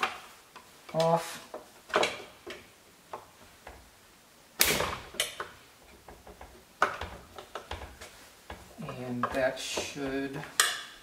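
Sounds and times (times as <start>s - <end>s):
plastic clicks and knocks: 5.1s - 10.9s.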